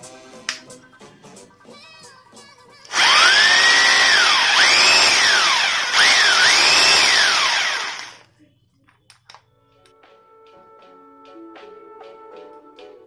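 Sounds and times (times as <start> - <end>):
rotary hammer drill motor whine: 2.9 - 8.2.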